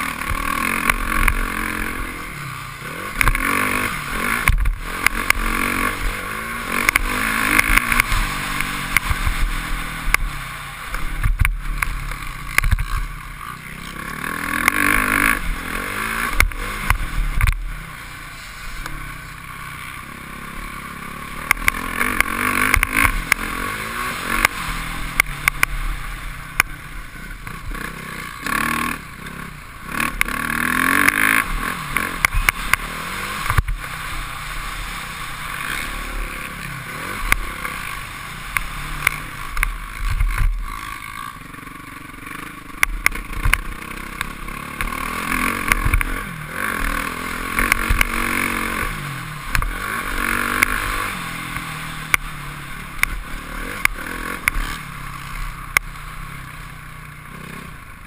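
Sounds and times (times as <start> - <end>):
dirt bike engine revving: 0.0 - 58.0
sharp clicks and knocks: 4.4 - 6.1, 6.8 - 9.3, 10.9 - 13.1, 16.3 - 17.7, 21.4 - 23.5, 42.8 - 45.0, 45.6 - 46.2, 47.5 - 48.2, 49.5 - 49.8, 53.0 - 54.6.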